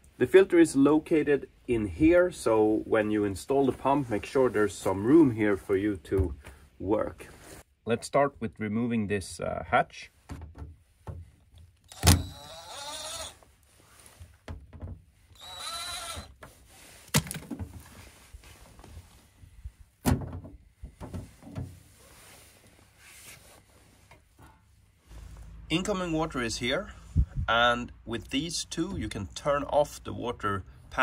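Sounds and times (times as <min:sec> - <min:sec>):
cordless drill whirring: 0:11.8 - 0:13.5, 0:15.3 - 0:16.4.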